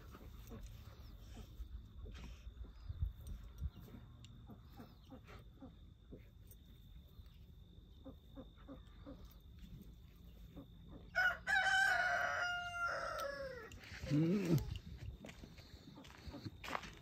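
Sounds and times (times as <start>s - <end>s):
rooster crowing: 11.1s - 14.0s.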